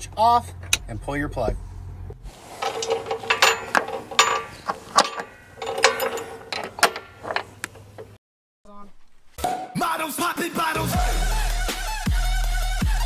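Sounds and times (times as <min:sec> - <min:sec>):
metal chain and hook clanking: 0:02.4 - 0:08.2.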